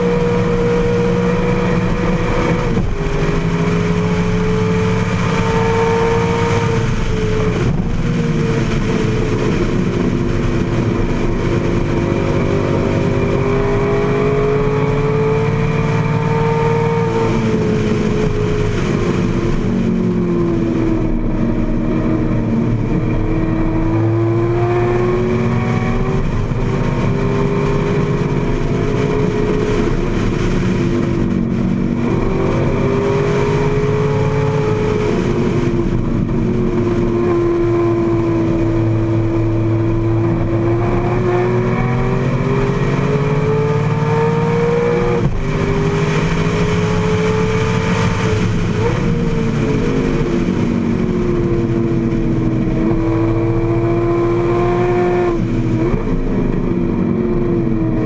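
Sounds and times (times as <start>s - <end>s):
racing engine revving: 0.0s - 58.0s.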